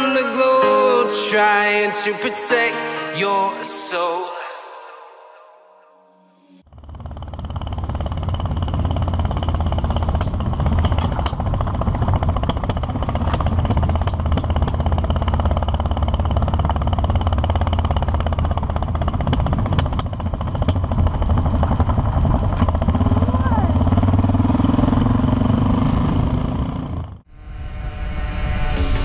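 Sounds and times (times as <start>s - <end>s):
motorcycle engine running: 6.6s - 27.3s.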